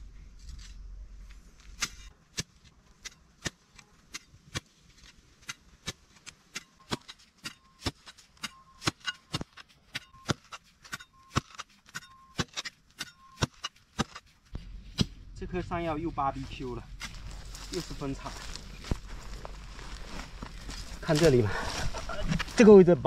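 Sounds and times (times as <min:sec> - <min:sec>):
spade jabbing into gritty soil: 0:01.6 - 0:15.2, 0:16.9 - 0:19.1.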